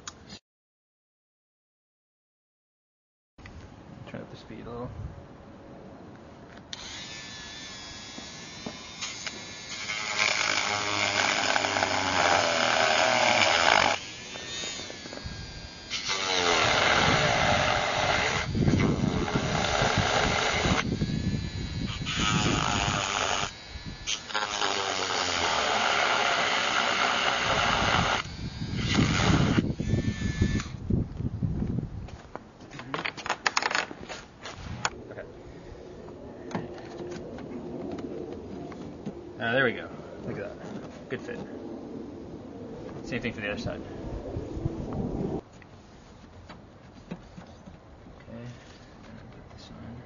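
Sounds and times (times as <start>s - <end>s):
rotary tool grinding plastic: 8.2s - 30.8s.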